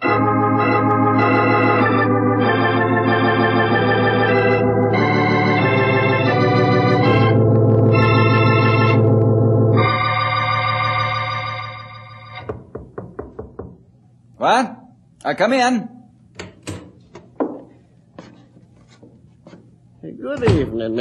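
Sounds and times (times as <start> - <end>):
organ chords: 0.0 - 12.7.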